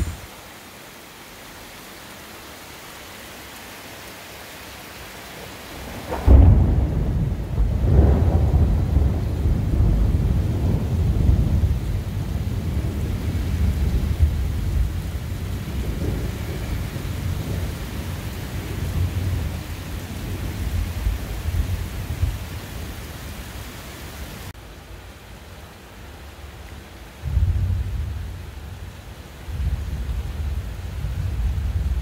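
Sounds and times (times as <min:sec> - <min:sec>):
heavy rain pouring: 0:00.0 - 0:32.0
low rumble of thunder: 0:05.8 - 0:23.3, 0:27.2 - 0:32.0.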